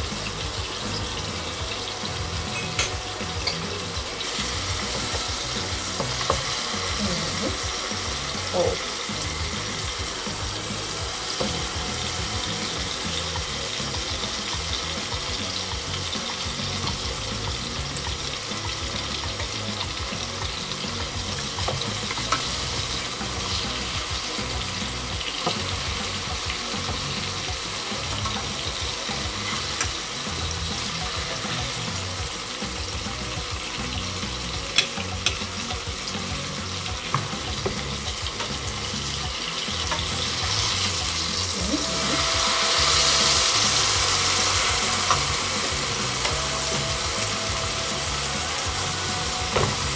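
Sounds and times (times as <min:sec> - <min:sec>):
banana slices sizzling in pan: 0:00.0 - 0:49.9.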